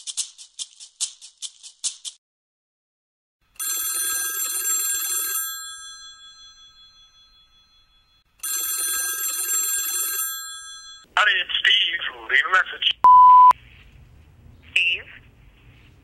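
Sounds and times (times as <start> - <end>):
telephone bell ringing: 3.6 - 11.1.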